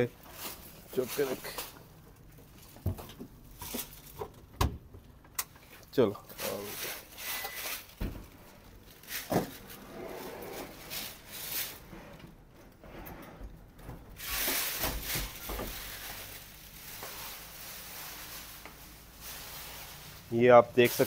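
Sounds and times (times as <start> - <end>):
oven casing scraping cabinet: 9.1 - 16.3.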